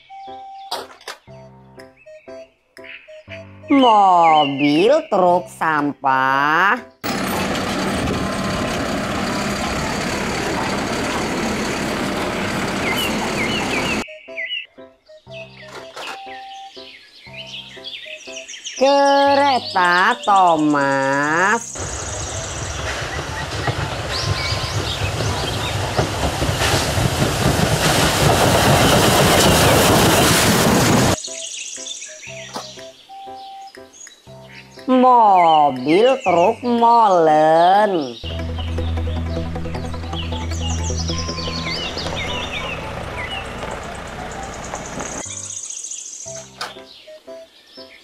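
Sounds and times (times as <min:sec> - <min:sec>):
birds chirping: 0:00.0 - 0:26.7, 0:31.1 - 0:48.0
garbage truck engine running: 0:07.0 - 0:14.0, 0:21.6 - 0:31.2, 0:38.2 - 0:45.3
hydraulics working: 0:07.0 - 0:14.0, 0:38.3 - 0:45.3
steam train rumbling over rails: 0:07.0 - 0:14.0, 0:21.3 - 0:31.2, 0:38.2 - 0:45.3.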